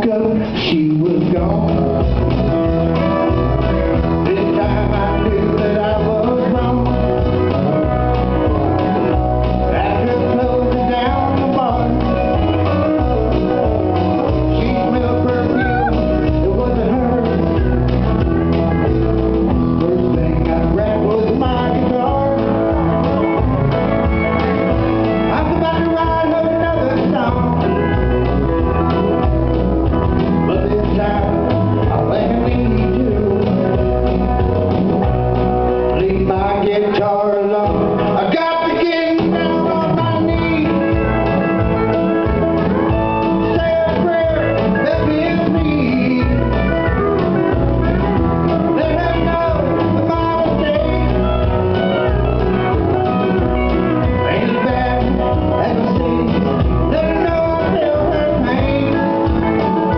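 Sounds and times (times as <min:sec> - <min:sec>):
person singing: 0:00.0 - 0:34.7, 0:35.6 - 0:59.9
acoustic guitar: 0:00.0 - 0:59.9
steady bass beat: 0:01.3 - 0:36.5.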